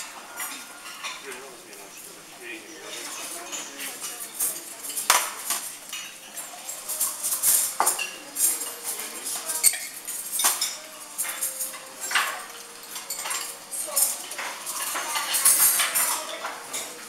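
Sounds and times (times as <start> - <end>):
cutlery clinking on ceramic plates: 0.0 - 1.4, 2.8 - 17.0.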